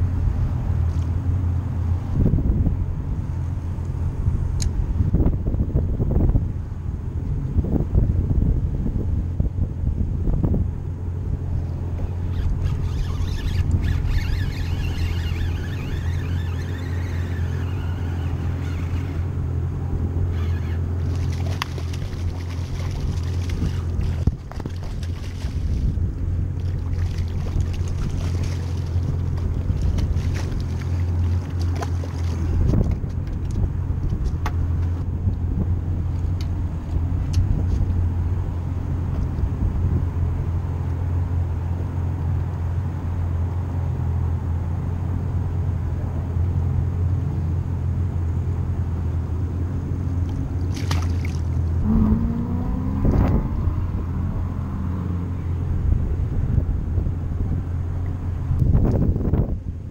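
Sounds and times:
low engine hum: 0:00.0 - 0:59.9
squeaky wavering sound: 0:12.2 - 0:19.6, 0:20.2 - 0:21.1.

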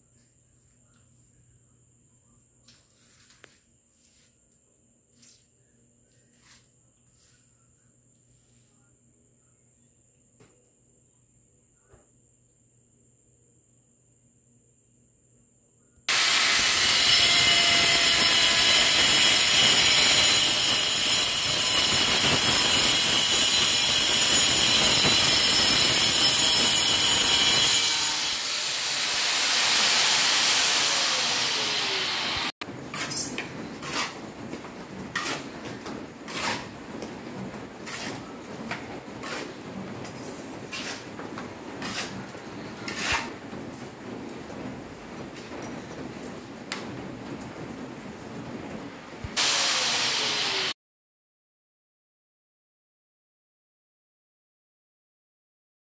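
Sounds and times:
power cutter grinding tile: 0:16.1 - 0:32.6, 0:49.4 - 0:50.8.

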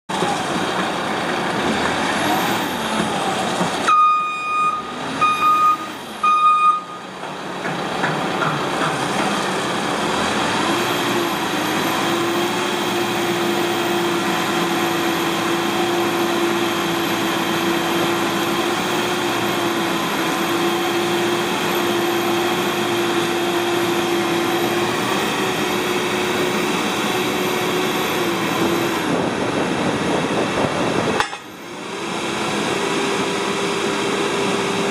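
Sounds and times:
diesel engine running: 0:00.1 - 0:34.9
reversing alarm beeping: 0:03.9 - 0:07.1.

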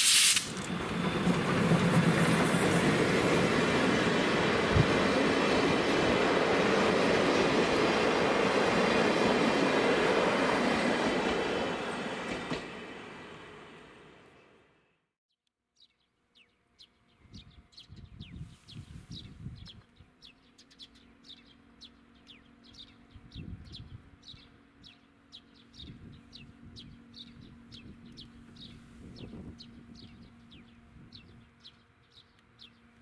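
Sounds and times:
passing train: 0:00.0 - 0:14.9, 0:21.0 - 0:33.0
small birds chirping: 0:15.8 - 0:33.0.

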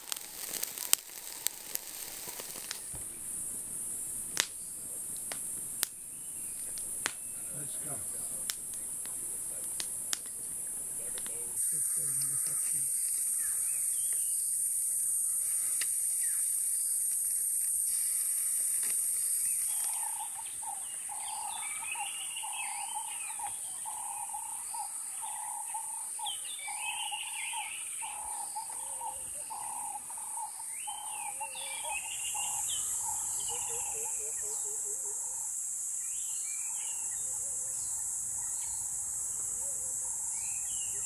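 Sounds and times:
insects shrilling: 0:00.0 - 0:41.0
bird chirps: 0:10.6 - 0:14.8, 0:19.2 - 0:35.2, 0:36.0 - 0:41.0.

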